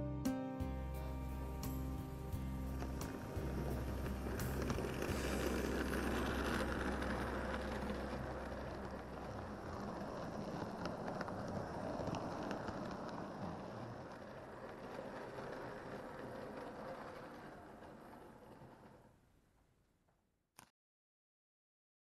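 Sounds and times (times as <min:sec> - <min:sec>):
model train wheels rattling: 0:02.4 - 0:19.6.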